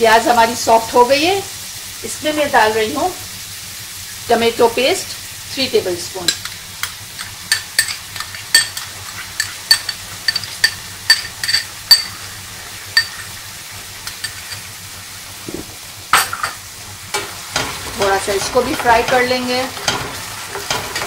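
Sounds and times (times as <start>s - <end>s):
onions sizzling in a frying pan: 0.0s - 21.0s
taps and clinks on a pan: 9.7s - 12.2s.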